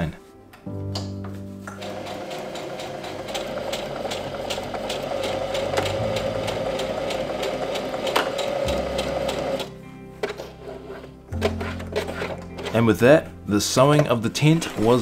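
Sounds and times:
sewing machine stitching: 0:01.8 - 0:09.7.

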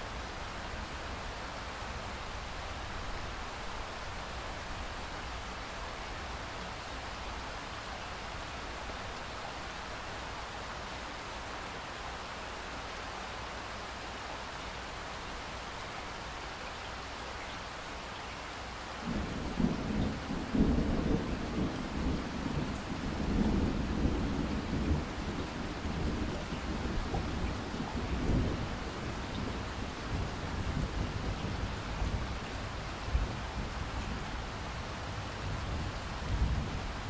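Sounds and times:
rain hiss: 0:00.0 - 0:37.0
rolling thunder rumble: 0:19.1 - 0:32.4.

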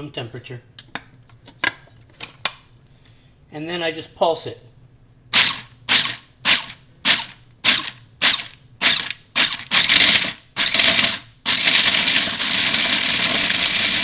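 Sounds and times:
food processor running: 0:07.1 - 0:14.0.

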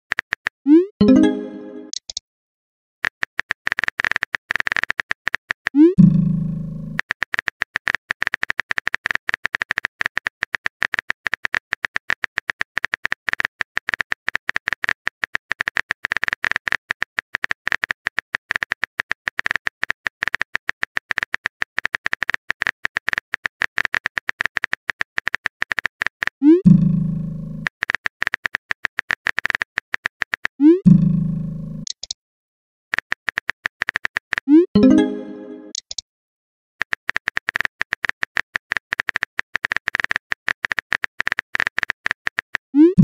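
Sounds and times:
phone keyboard typing clicks: 0:31.8 - 0:32.2, 0:32.9 - 0:36.0.

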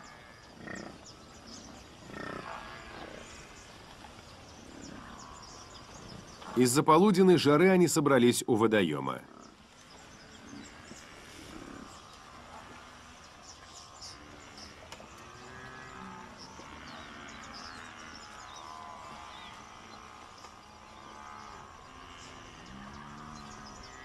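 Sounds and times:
buffalo low calls: 0:00.0 - 0:07.6.

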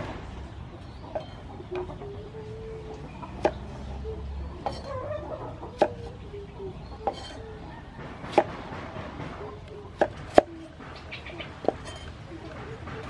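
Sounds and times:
knife chopping on wooden board: 0:03.4 - 0:03.7, 0:05.8 - 0:06.1, 0:07.0 - 0:07.4, 0:08.0 - 0:08.6.

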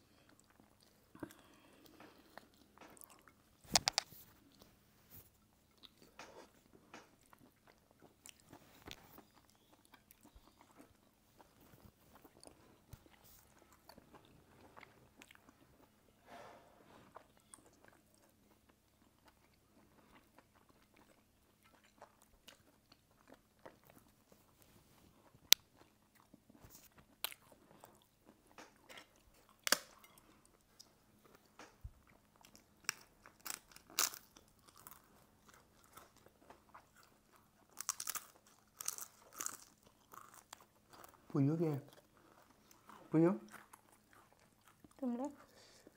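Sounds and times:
soft chewing: 0:00.0 - 0:16.2, 0:16.9 - 0:45.9
crisp crackers crunching: 0:32.4 - 0:41.2.

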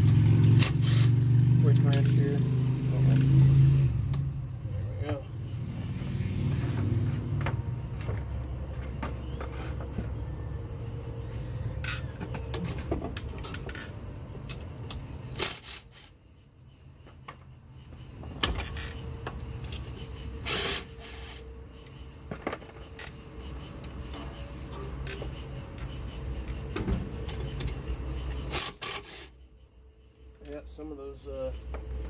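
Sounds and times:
cordless driver bursts: 0:28.5 - 0:29.3.

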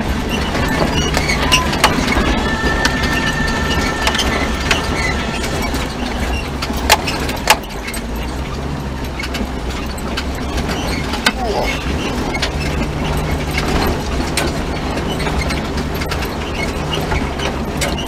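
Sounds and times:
car engine running: 0:00.0 - 0:18.0
faint thin high tone: 0:00.9 - 0:07.2.

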